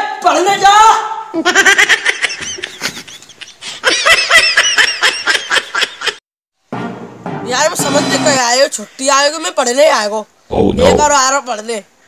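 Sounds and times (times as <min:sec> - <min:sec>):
person laughing: 0:01.4 - 0:06.2.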